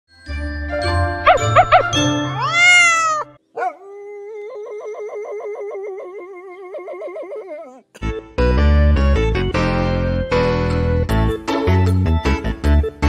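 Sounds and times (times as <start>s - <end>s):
dog howling: 2.4s - 7.9s.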